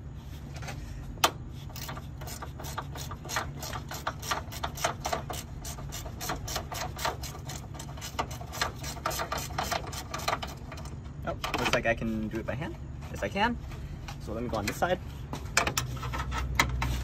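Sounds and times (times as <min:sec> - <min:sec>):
ratcheting spanner clicking: 0:01.2 - 0:11.8.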